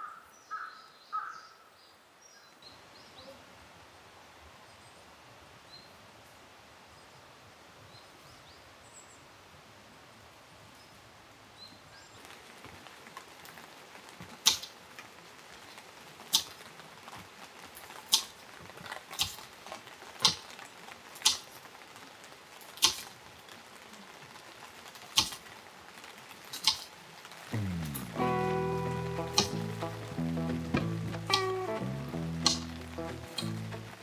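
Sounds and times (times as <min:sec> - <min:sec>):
heavy water drops tapping: 0:27.5 - 0:34.0.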